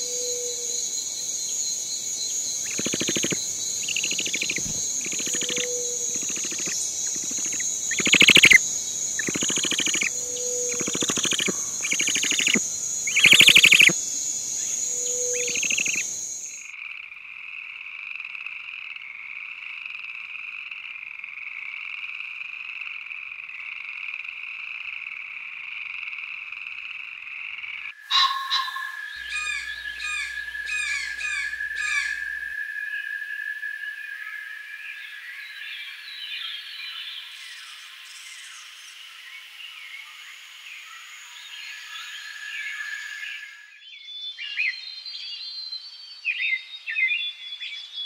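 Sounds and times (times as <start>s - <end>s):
high insect drone: 0.0s - 16.7s
frogs croaking: 0.0s - 35.5s.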